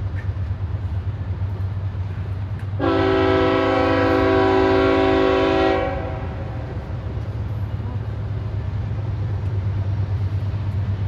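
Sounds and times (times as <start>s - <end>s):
freight train rumble: 0.0s - 11.0s
locomotive air horn: 2.8s - 6.7s.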